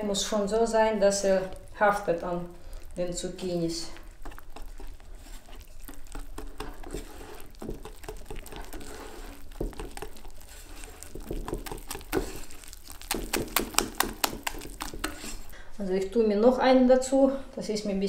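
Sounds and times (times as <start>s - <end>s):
whisk beating batter in glass bowl: 2.8s - 15.5s.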